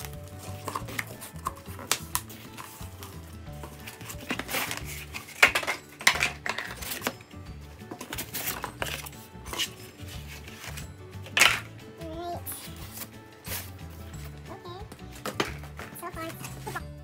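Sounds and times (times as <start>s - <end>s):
cardboard scraping and rustling: 0.0s - 5.7s, 8.0s - 10.9s, 12.5s - 14.4s
background music with bass: 0.0s - 17.0s.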